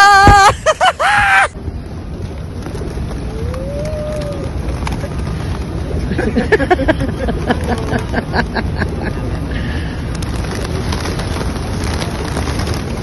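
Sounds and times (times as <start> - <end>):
person shrieking and squealing: 0.0 - 1.6
pigeon wings flapping: 1.8 - 13.0.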